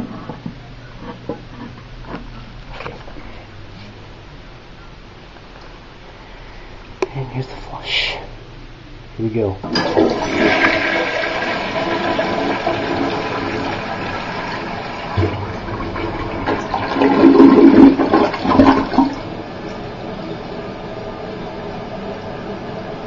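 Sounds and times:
toilet flushing: 0:09.6 - 0:23.0.

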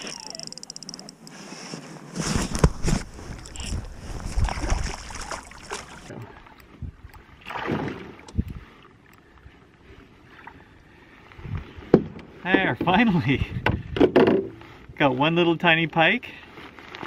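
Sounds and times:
rustling and scuffing: 0:01.4 - 0:06.1
wind on microphone: 0:02.5 - 0:05.3, 0:08.3 - 0:08.7, 0:11.3 - 0:11.9.

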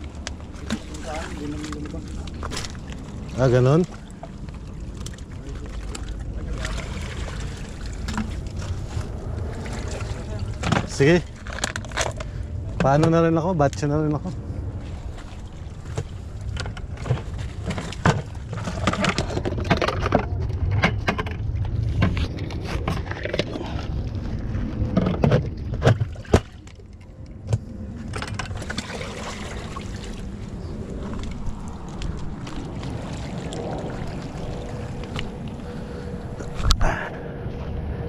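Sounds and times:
wind rumble on microphone: 0:00.0 - 0:38.0
fishing gear clicks and knocks: 0:10.6 - 0:13.8, 0:15.9 - 0:23.9
footsteps on rocky shore: 0:30.8 - 0:33.6.

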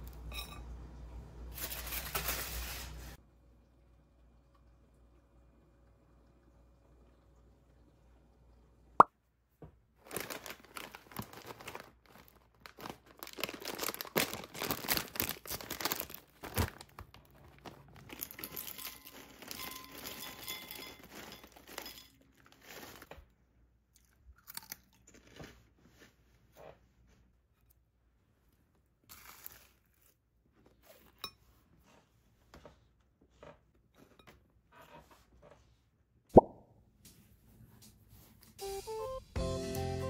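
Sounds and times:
plastic snack bag crinkling: 0:10.0 - 0:23.1
chips pouring into glass bowl: 0:18.0 - 0:23.1.

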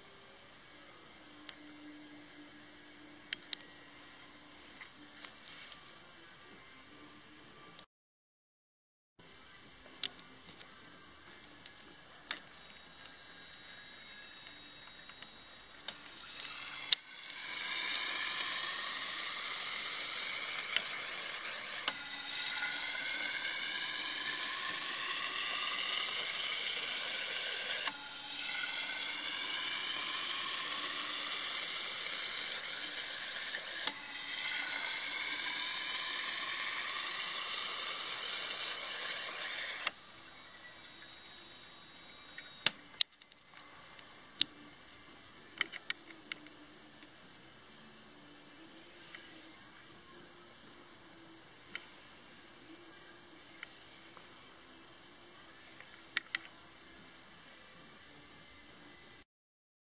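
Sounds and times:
fuel injectors spraying hiss: 0:15.9 - 0:39.8.

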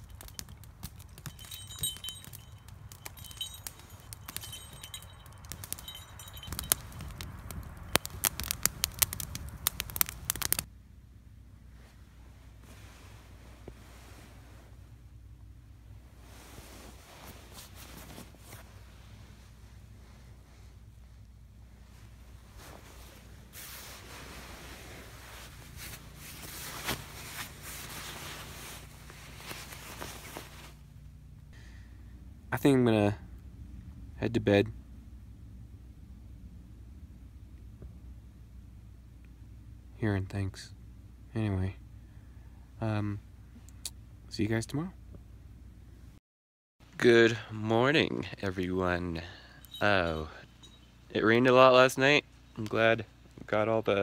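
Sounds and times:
campfire crackling and popping: 0:00.0 - 0:10.7
low steady hush: 0:00.0 - 0:46.2, 0:46.9 - 0:54.0
nylon fabric rustling: 0:16.2 - 0:19.2, 0:21.9 - 0:30.8.

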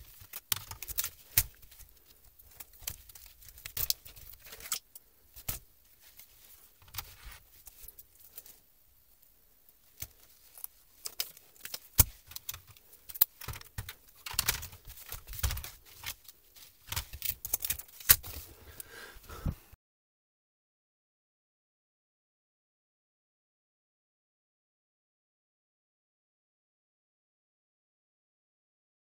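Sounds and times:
keyboard handling clicks and knocks: 0:11.2 - 0:16.2.

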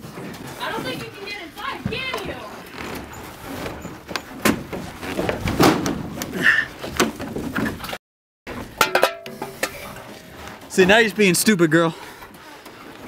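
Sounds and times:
knocks and clanks on metal fuselage: 0:08.6 - 0:09.8.

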